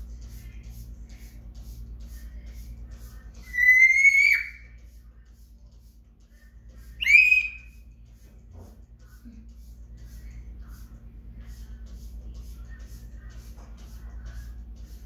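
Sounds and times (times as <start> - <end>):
parrot whistling: 3.4 - 4.8, 7.0 - 7.8.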